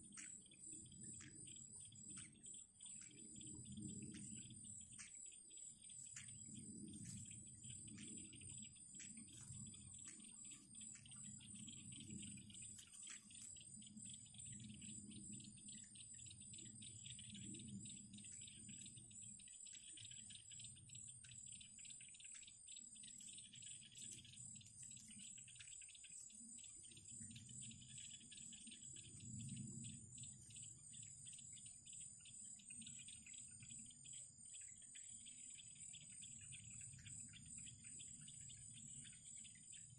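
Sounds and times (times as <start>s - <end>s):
crickets trilling: 0.0s - 39.9s.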